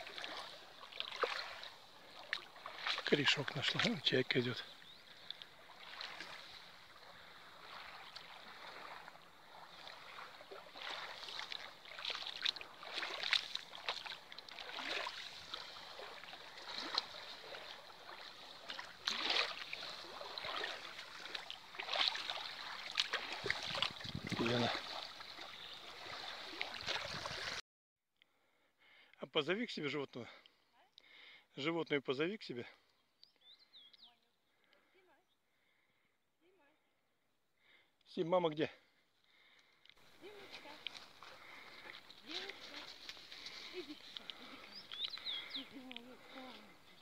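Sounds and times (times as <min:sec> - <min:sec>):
river water splashing on shore: 0:00.0 - 0:27.6, 0:40.0 - 0:47.0
steady water wash: 0:00.0 - 0:27.6.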